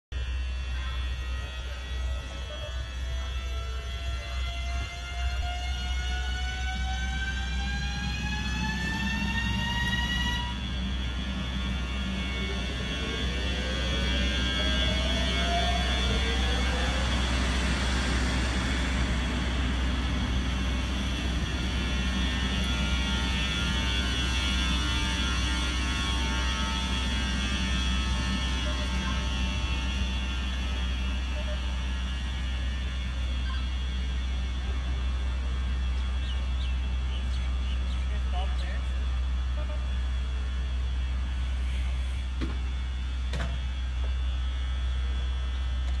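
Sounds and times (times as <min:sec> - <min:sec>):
electric locomotive humming: 0:00.1 - 0:46.0
thin high whine: 0:00.2 - 0:45.7.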